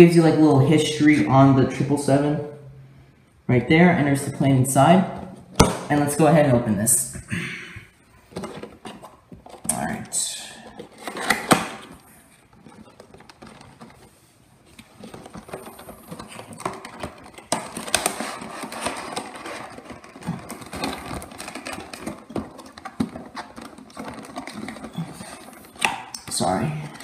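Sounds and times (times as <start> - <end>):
plastic wrapping rustling: 7.9 - 27.0
cardboard box being opened: 10.7 - 27.0.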